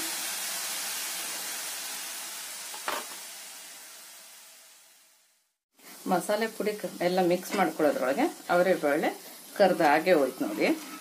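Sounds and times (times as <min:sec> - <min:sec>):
oil sizzling: 0:00.0 - 0:11.0.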